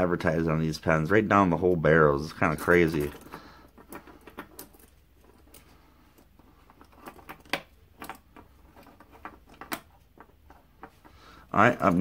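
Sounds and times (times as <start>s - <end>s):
pens clicking and tapping on wood: 6.2s - 11.2s.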